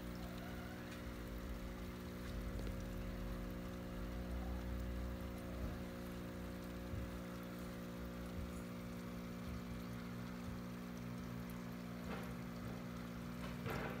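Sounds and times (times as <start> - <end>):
aquarium pump humming: 0.0 - 14.0
water moving through tank: 0.0 - 14.0.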